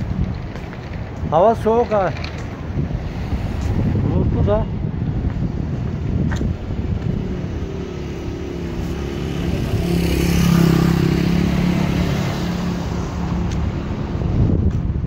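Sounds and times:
wind buffeting microphone: 0.0s - 15.0s
vehicle engine passing by: 7.4s - 14.7s.

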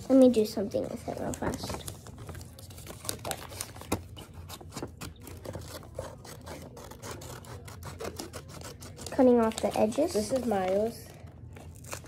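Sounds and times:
scissors snipping paper: 2.5s - 10.9s.

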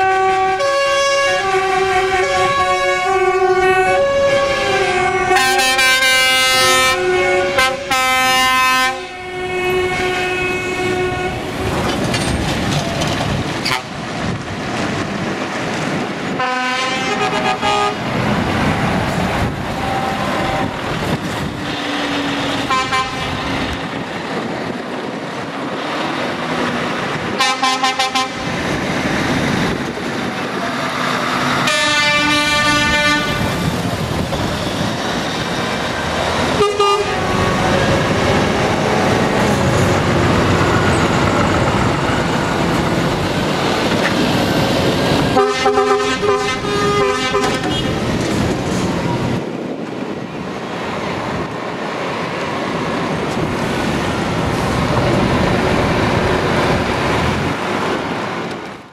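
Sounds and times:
truck air horn blasts: 0.0s - 11.4s, 16.4s - 18.1s, 19.7s - 20.8s, 22.7s - 23.4s, 27.4s - 28.4s, 31.6s - 33.6s, 36.6s - 37.5s, 45.4s - 48.0s
diesel lorry engines: 0.0s - 58.9s.

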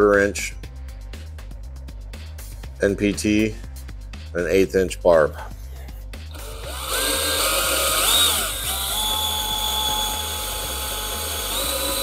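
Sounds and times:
cordless drill whining: 6.3s - 12.0s.

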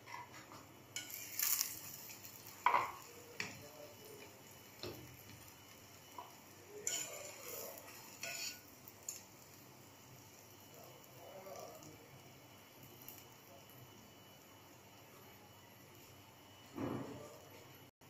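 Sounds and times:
tongs clinking on frying pan: 1.0s - 3.6s, 6.1s - 9.5s.

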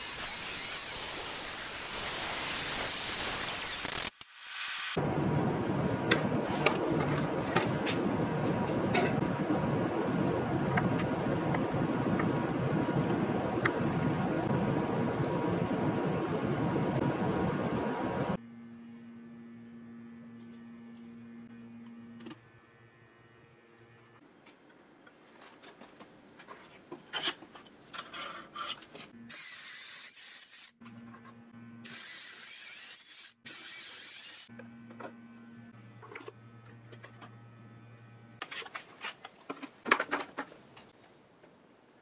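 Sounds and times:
power drill boring into wood: 31.9s - 34.5s.

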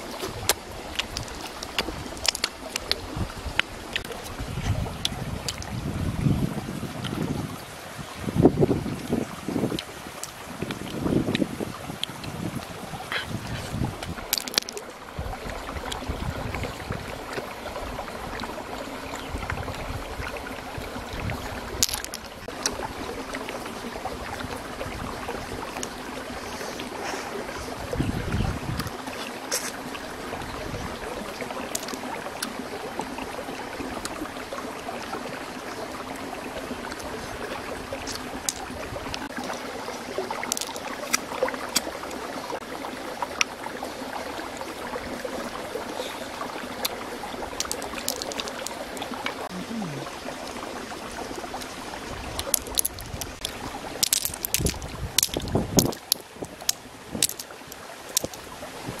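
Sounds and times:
shells clicking and cracking: 14.3s - 14.8s, 21.8s - 22.3s, 31.7s - 32.0s, 40.4s - 41.2s, 47.5s - 49.3s, 52.4s - 58.4s.

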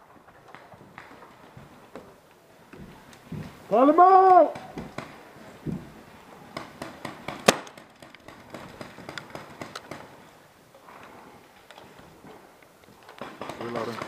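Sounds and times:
paintball markers firing: 6.6s - 10.2s.

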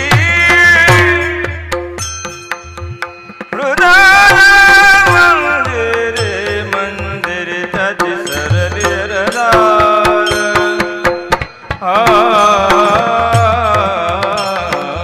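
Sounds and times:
person singing devotional melody: 0.0s - 15.0s
small cymbal clashes: 1.4s - 5.1s.

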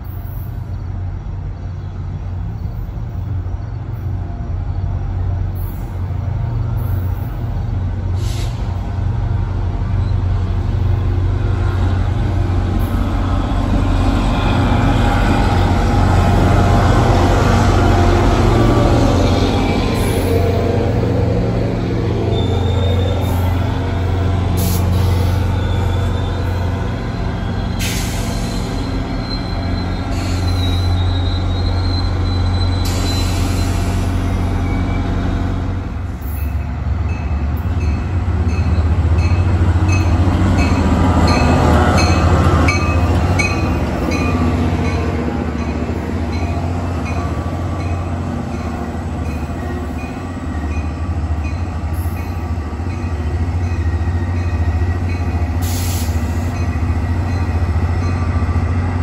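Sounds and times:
diesel locomotive engine drone: 0.0s - 59.0s
wheel and rail noise with squeal: 0.0s - 59.0s
air hissing: 55.6s - 56.5s.

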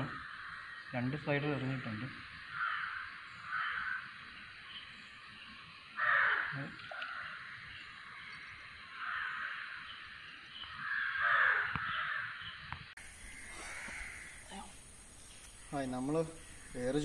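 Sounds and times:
bird calling harshly: 6.0s - 7.5s, 10.6s - 17.0s.

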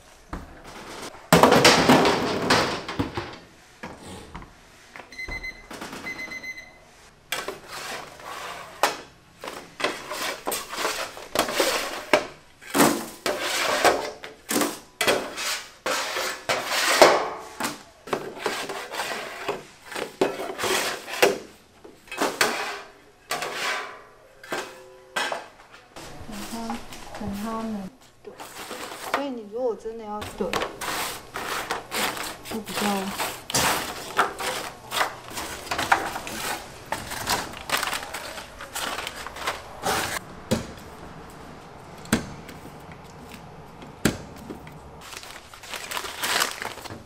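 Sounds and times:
metal pans scraping and clanking: 7.4s - 27.4s, 28.2s - 29.3s, 30.2s - 40.2s.

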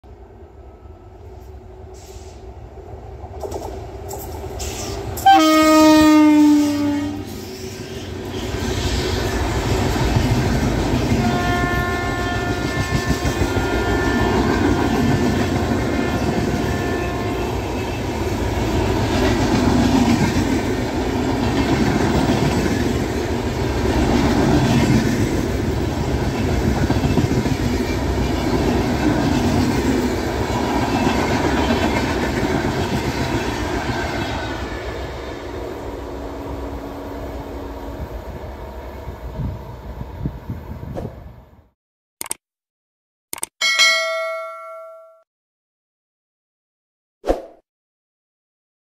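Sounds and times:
train wheels rumbling and clattering: 2.8s - 5.3s, 18.4s - 34.5s
train horn blast: 5.2s - 7.4s, 11.2s - 18.0s.

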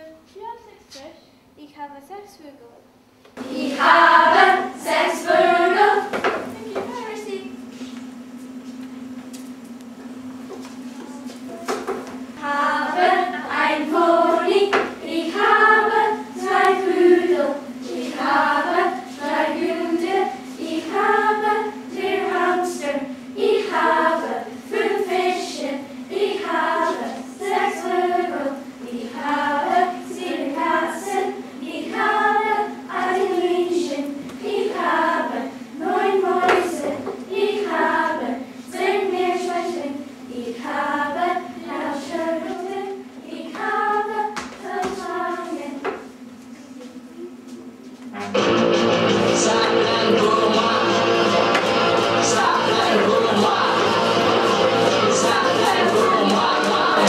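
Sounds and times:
steady low hum: 0.0s - 57.0s
children singing together: 3.4s - 6.4s, 12.4s - 46.1s, 48.2s - 57.0s.

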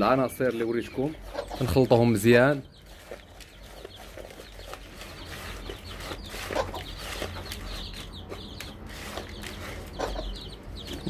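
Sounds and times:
chicks peeping: 0.0s - 11.0s
hen clucking: 0.1s - 11.0s
hand stirring dry grain: 3.0s - 10.1s.

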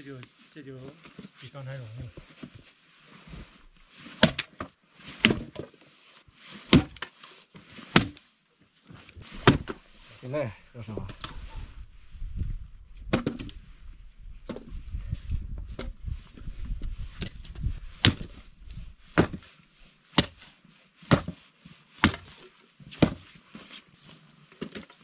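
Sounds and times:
hatchet chopping wood: 4.2s - 4.6s, 6.7s - 7.1s, 7.9s - 8.2s, 9.4s - 9.8s, 18.0s - 18.4s, 19.1s - 19.4s, 20.2s - 20.5s, 21.1s - 21.4s, 22.0s - 23.3s.

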